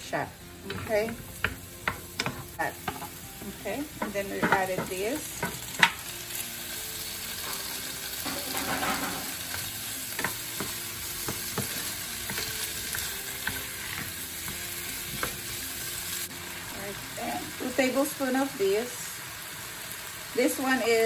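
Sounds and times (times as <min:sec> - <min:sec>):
vegetables sizzling in butter: 0:00.0 - 0:21.0
spatula stirring and tapping pan: 0:00.6 - 0:06.1, 0:08.2 - 0:15.7.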